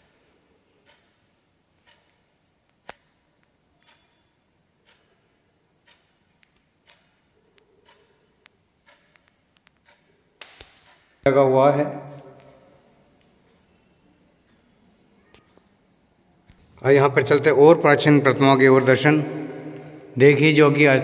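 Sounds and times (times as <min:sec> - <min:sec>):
soft ticks: 0:00.8 - 0:11.2.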